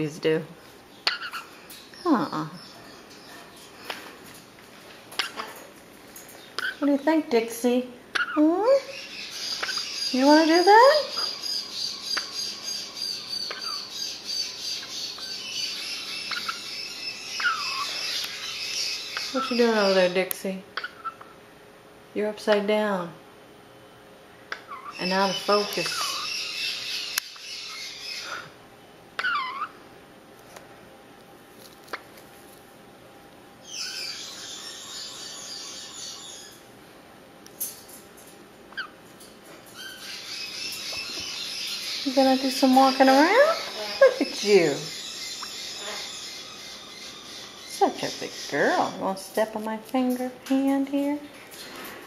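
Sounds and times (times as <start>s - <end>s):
parrots twittering: 0.9s - 4.1s, 5.1s - 5.7s, 6.3s - 21.4s, 24.5s - 28.6s, 29.2s - 29.8s, 33.6s - 36.7s, 37.6s - 49.1s.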